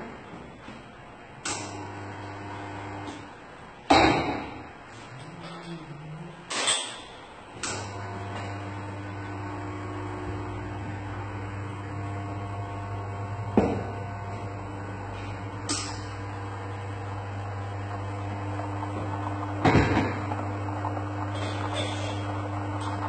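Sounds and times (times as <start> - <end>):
espresso machine pump humming: 1.6 - 3.3, 7.7 - 23.0
espresso machine metal clack: 21.3 - 23.0.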